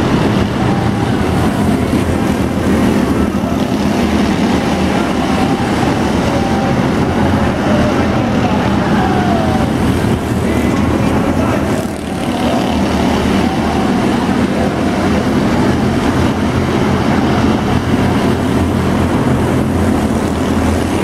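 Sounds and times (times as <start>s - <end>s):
race car engines running: 0.0s - 21.0s.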